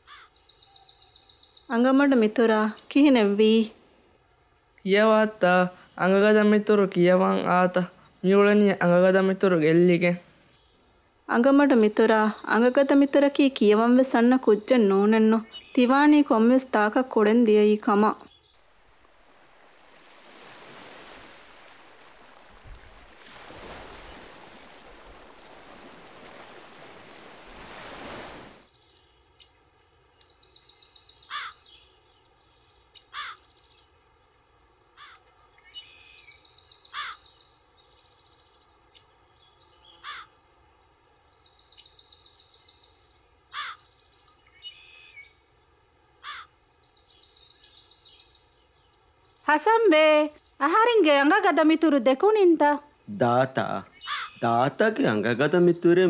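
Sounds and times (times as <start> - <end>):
loud bird calls: 0.0 - 1.8, 30.2 - 40.6, 41.3 - 45.6, 46.2 - 49.4, 53.6 - 54.8
high bird chirping: 0.1 - 1.9, 30.2 - 40.4, 41.2 - 45.6, 53.8 - 55.2
sea surf washing on a beach: 18.9 - 28.7.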